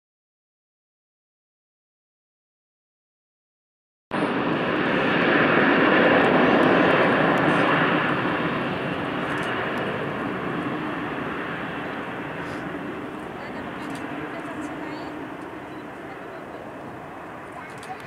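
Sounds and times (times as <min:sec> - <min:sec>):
jet engines roaring: 0:04.1 - 0:18.0.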